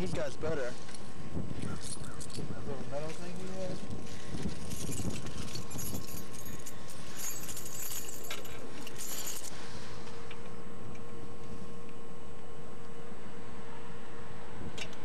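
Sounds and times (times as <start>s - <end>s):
faint steady hum: 0.0s - 15.0s
small metal parts jingling: 1.6s - 9.6s.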